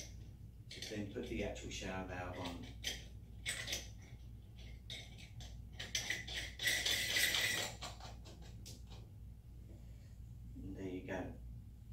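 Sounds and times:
metal grating scrape: 0:02.3 - 0:08.3.

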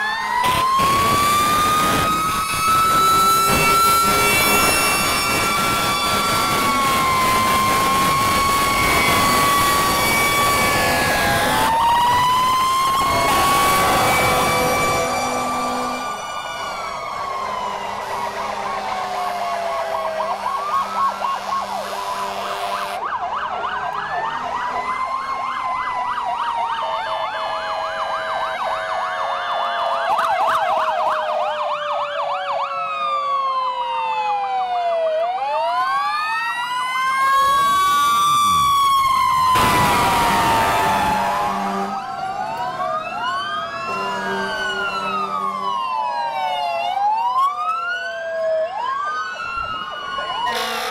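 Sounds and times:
sirens wailing and yelping: 0:00.0 - 0:50.9
loud horn blast: 0:03.1 - 0:07.0, 0:13.2 - 0:16.2, 0:17.9 - 0:19.6, 0:20.4 - 0:23.0, 0:39.6 - 0:42.0, 0:43.8 - 0:45.6, 0:50.5 - 0:50.9.

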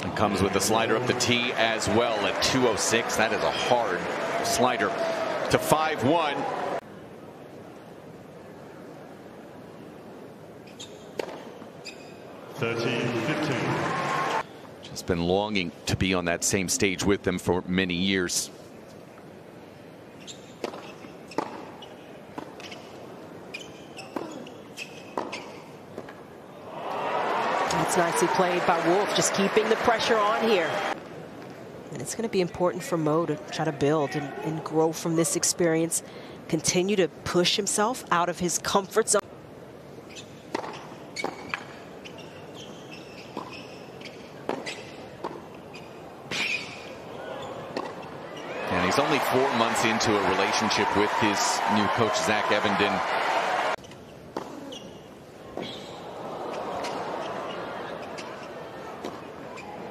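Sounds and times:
shoes squeaking on court: 0:10.6 - 0:12.3, 0:20.2 - 0:26.2, 0:40.0 - 0:49.7, 0:53.8 - 0:59.9
racquets striking tennis ball: 0:11.2 - 0:11.5, 0:20.6 - 0:22.9, 0:40.5 - 0:41.8, 0:44.4 - 0:45.6, 0:47.7 - 0:48.1
tennis ball bouncing: 0:11.2 - 0:11.5, 0:20.6 - 0:22.9, 0:40.5 - 0:41.8, 0:43.2 - 0:45.7, 0:47.7 - 0:48.1, 0:54.3 - 0:54.6.

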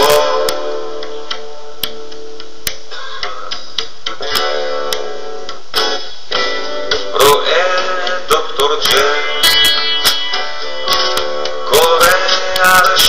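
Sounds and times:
guitar plucking notes: 0:00.0 - 0:13.0.

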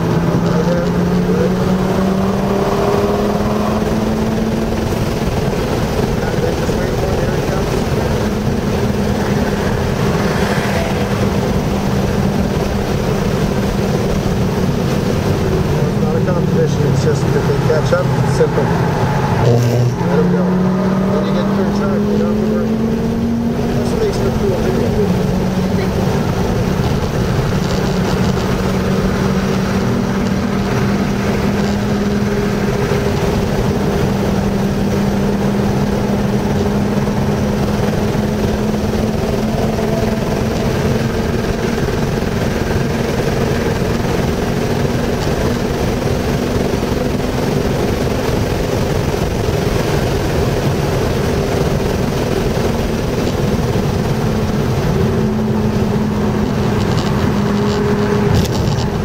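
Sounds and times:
car engine: 0:00.0 - 0:59.0
road noise: 0:00.0 - 0:59.0.

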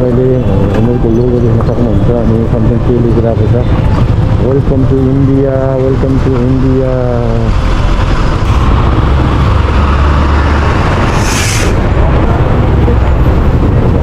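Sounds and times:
motorcycle engine rumble: 0:00.0 - 0:14.0
road noise: 0:00.0 - 0:14.0
wind buffeting microphone: 0:07.5 - 0:14.0
brief hiss: 0:11.1 - 0:11.8.

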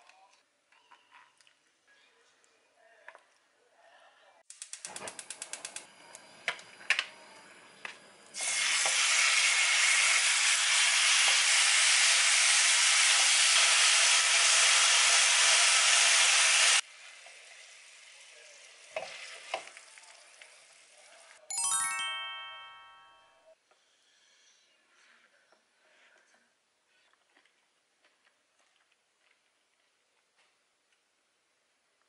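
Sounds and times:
pork sizzling in a wok: 0:08.4 - 0:21.4.

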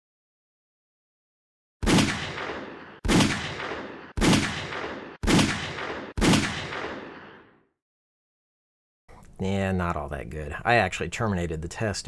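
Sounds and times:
pistol shots with echo: 0:01.8 - 0:07.5.

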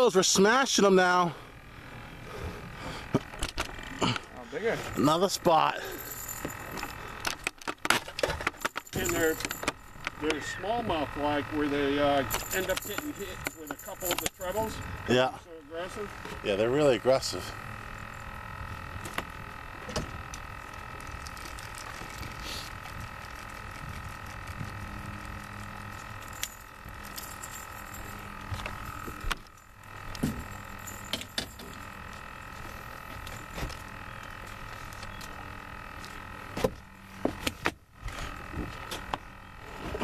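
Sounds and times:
small electric motor humming: 0:00.0 - 0:40.0
clicks and knocks of hooks: 0:06.4 - 0:10.4, 0:12.3 - 0:14.6.

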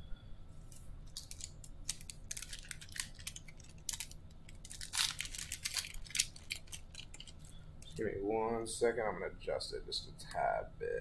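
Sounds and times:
foil wrapper crinkling and tearing: 0:00.7 - 0:08.0.

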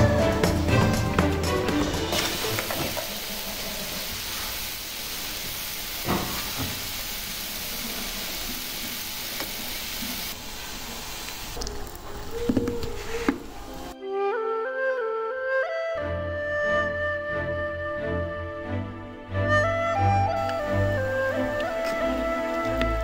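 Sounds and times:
steam hissing: 0:02.0 - 0:14.0, 0:20.6 - 0:23.0.

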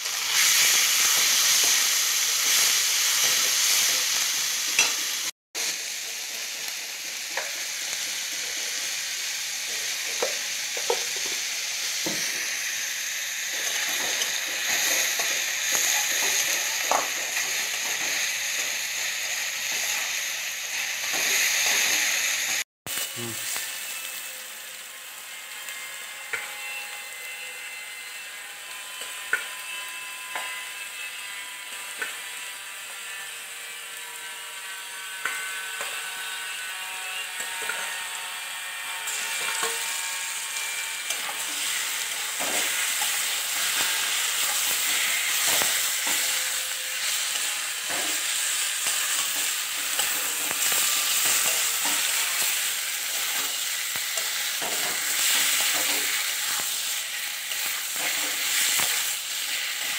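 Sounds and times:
onions sizzling in hot oil: 0:00.0 - 0:59.9
spatula scraping through food: 0:38.7 - 0:59.9.

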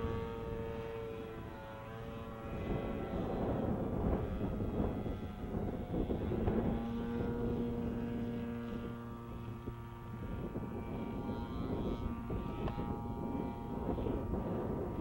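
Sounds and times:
distant model plane engine drone: 0:00.0 - 0:15.0.

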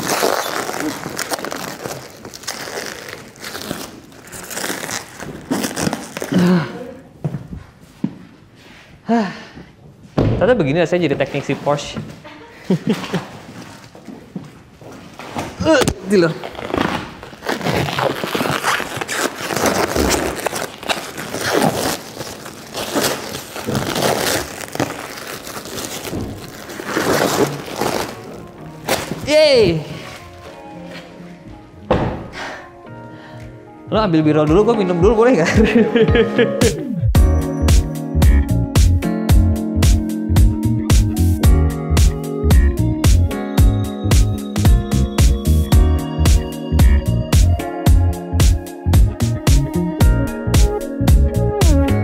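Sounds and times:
car cover crinkling and rustling: 0:16.2 - 0:29.3.

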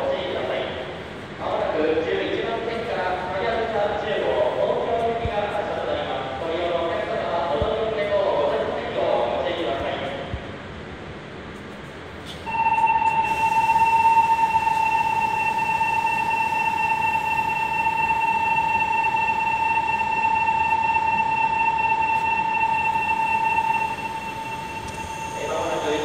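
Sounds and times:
station departure buzzer: 0:12.4 - 0:26.0.

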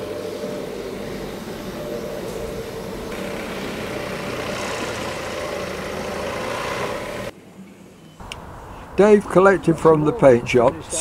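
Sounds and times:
steady mechanical drone: 0:00.0 - 0:07.4.

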